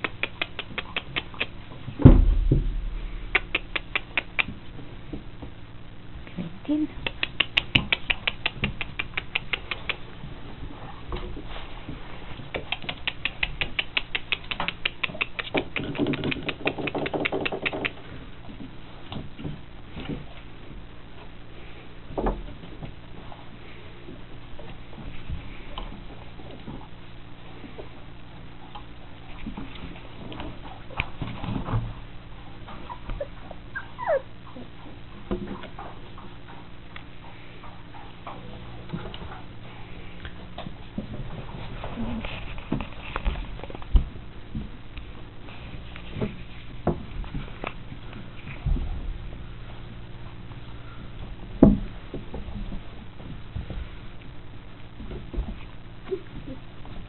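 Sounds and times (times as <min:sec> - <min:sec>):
rapid small clicks: 0:00.0 - 0:01.6, 0:07.0 - 0:10.2, 0:12.3 - 0:18.1
puppy whining: 0:32.7 - 0:34.9
faint puppy squeaks: 0:32.8 - 0:34.8.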